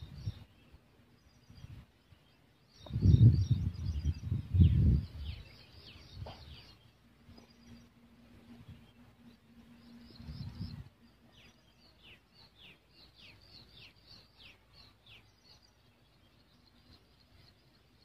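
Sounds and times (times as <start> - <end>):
low rumble on microphone: 0.0 - 12.1
faint bird chirps: 0.0 - 18.0.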